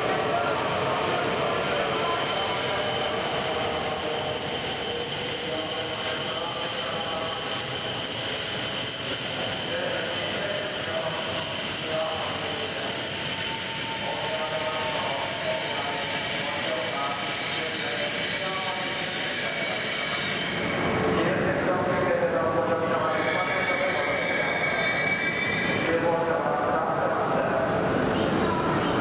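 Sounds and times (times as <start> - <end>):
train rumbling into station: 0.0 - 29.0.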